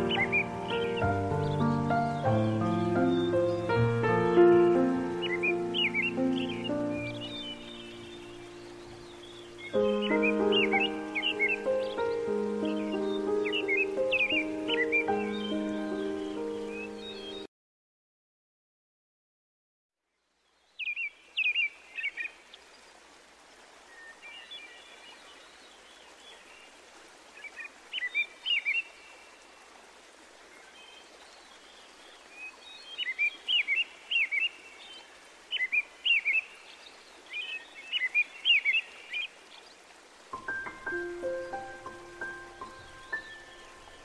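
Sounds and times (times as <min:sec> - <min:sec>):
soft outdoor hiss: 0:00.0 - 0:17.5, 0:20.0 - 0:44.0
songbird chirping: 0:00.0 - 0:17.5, 0:20.3 - 0:44.0.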